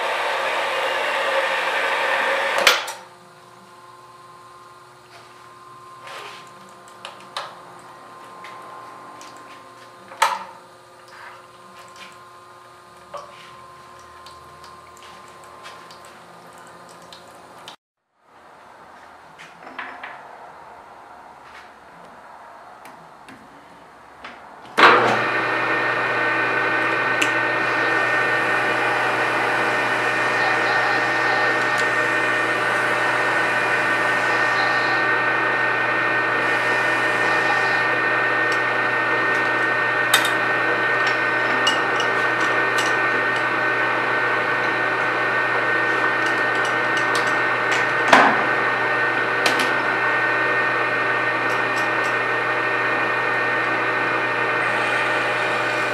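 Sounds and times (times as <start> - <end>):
lathe running with whine: 0.0 - 17.6, 24.8 - 55.9
lathe switch clunk: 24.8 - 25.3.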